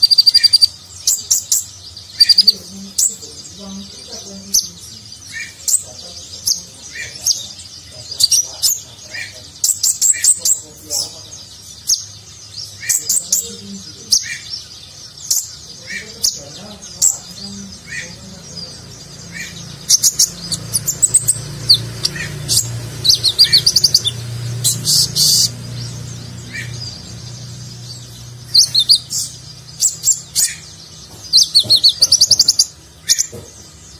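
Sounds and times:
sunbird singing: 0.0s - 33.9s.

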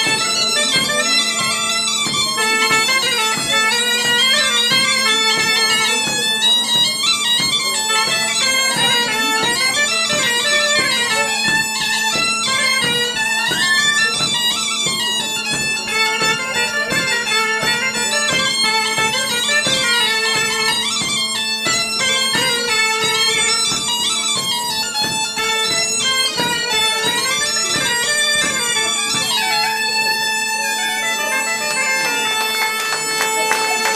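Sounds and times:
bagpipe drone: 0.0s - 33.9s
bagpipe playing dance tune: 0.0s - 33.9s
bombarde: 0.0s - 33.9s.

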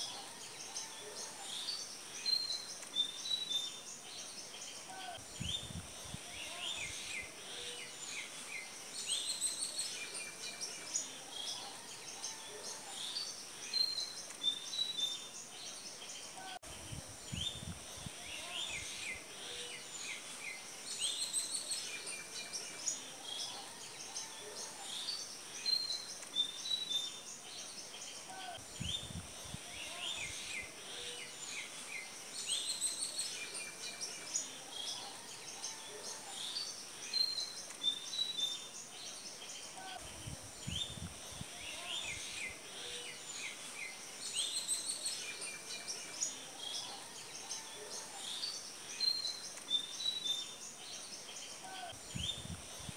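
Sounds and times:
small birds chirping: 0.0s - 52.9s.

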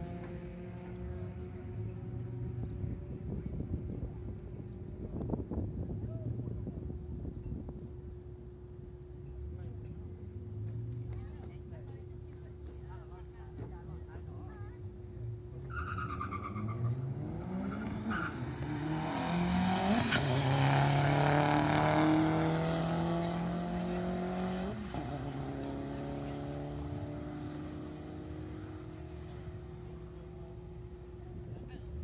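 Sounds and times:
cars accelerating hard: 15.6s - 30.9s.

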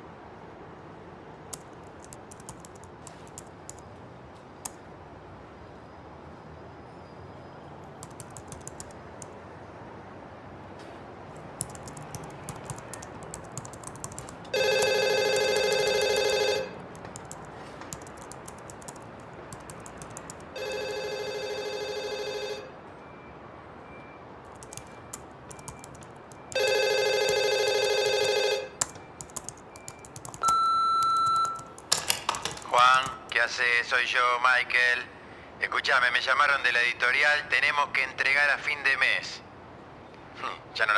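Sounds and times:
laptop keyboard typing: 1.5s - 3.8s, 7.8s - 9.4s, 11.3s - 22.6s, 24.5s - 33.4s
telephone ringing: 11.6s - 22.8s, 24.5s - 33.4s
answering machine beep: 14.6s - 16.8s, 23.9s - 31.9s.

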